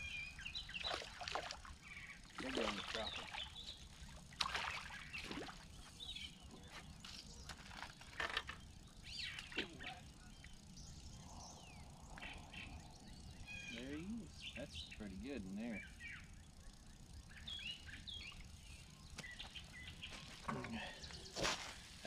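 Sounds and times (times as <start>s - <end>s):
birds chirping: 0.0s - 22.0s
fish splashing in water: 4.3s - 5.7s.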